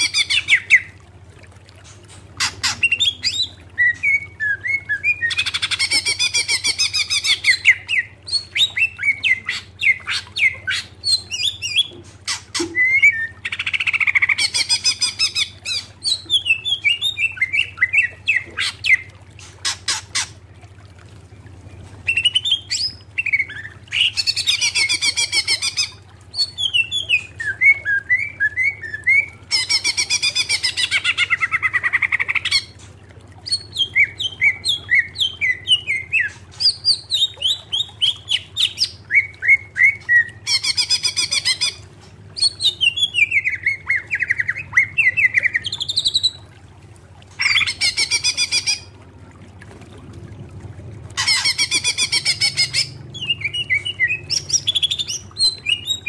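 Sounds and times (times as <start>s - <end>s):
faint low hum: 0.0s - 56.0s
bird chirps and whistles: 2.6s - 20.0s, 33.5s - 41.8s, 51.2s - 56.0s.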